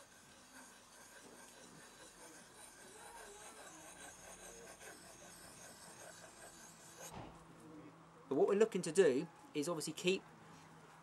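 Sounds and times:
knife blade rubbing on whetstone: 0.0s - 7.2s.

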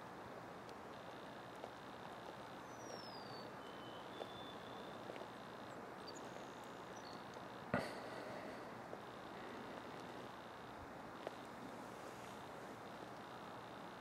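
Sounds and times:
outdoor background noise: 0.0s - 14.0s
faint high chirps: 2.3s - 7.9s.

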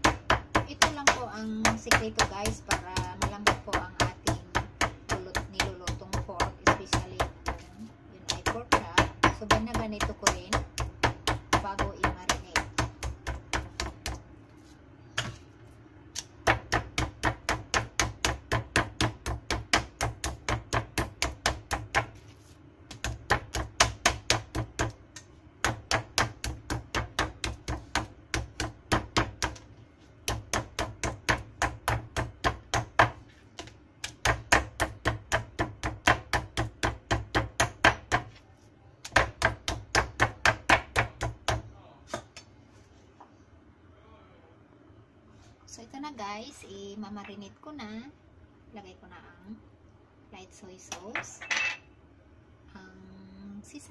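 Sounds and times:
meat tenderizer pounding meat: 0.0s - 7.7s, 8.3s - 14.2s, 16.2s - 22.2s, 22.9s - 25.0s, 25.6s - 29.6s, 30.2s - 38.3s.

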